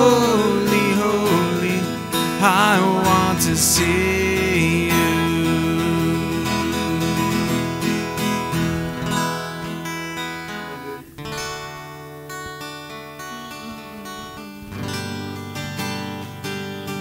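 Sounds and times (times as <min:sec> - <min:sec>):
acoustic guitar strumming: 0:00.0 - 0:17.0.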